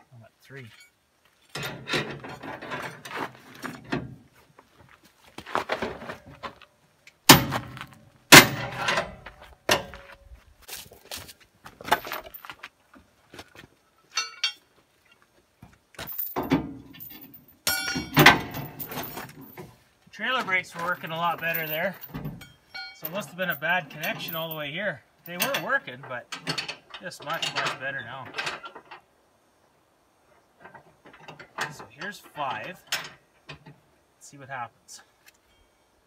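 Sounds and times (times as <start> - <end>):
metal clanks: 0.7 - 4.2, 7.3 - 10.2, 14.1 - 14.7, 16.0 - 19.7, 20.4 - 29.1, 30.5 - 33.8
chain links rattling: 16.0 - 19.6, 20.7 - 25.8.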